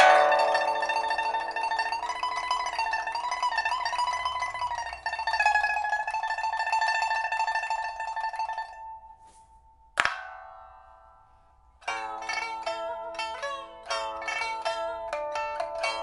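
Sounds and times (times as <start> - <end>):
pipa melody: 0.0 - 16.0.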